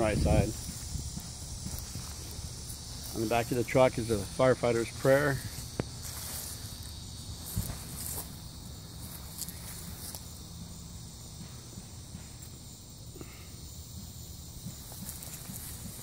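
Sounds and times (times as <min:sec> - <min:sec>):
wind rumble on microphone: 0:00.0 - 0:02.6
insects chorus: 0:00.0 - 0:16.0.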